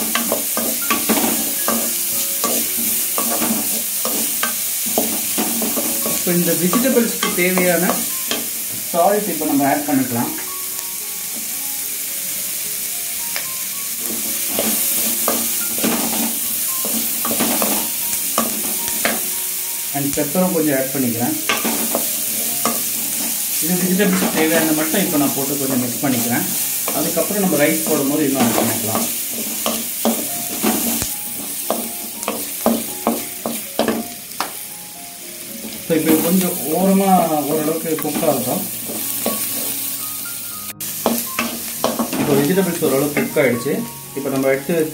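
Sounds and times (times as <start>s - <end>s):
vegetables sizzling in oil: 0.0s - 44.9s.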